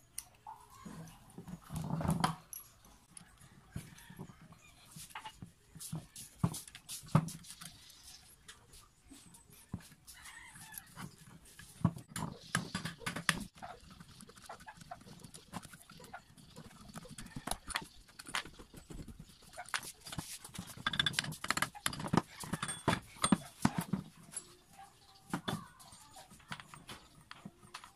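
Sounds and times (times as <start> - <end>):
tools clinking on metal housing: 20.7 - 24.6.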